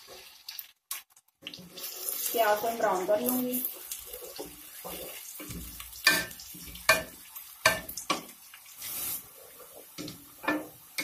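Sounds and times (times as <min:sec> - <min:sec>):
onions sizzling in hot oil: 0:00.0 - 0:00.9, 0:01.5 - 0:11.0
wooden spoon knocking on pot: 0:05.4 - 0:08.3.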